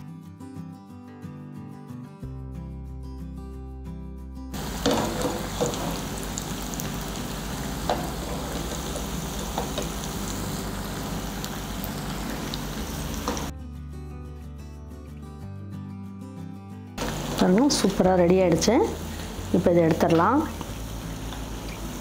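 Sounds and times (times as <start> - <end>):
background music: 0.0 - 22.0
deep-frying sizzle with pops: 4.6 - 13.5, 17.0 - 22.0.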